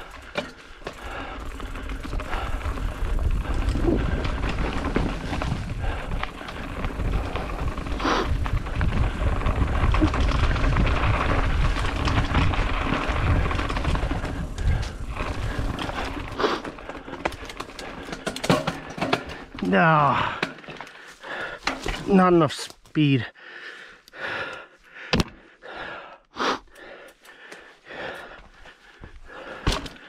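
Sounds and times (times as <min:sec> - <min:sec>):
bike rattling over rocks: 0:00.0 - 0:22.5.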